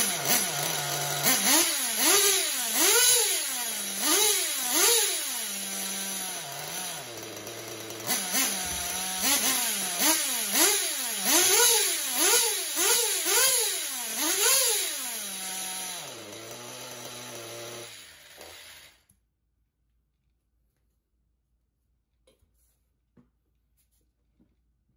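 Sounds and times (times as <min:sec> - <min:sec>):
nitro engine revving: 0:00.0 - 0:18.0.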